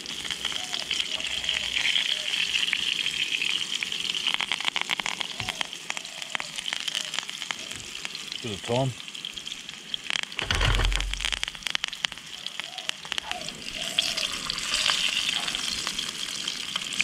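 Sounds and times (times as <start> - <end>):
fish sizzling in frying pan: 0.0 - 17.0
low thud: 10.4 - 11.7.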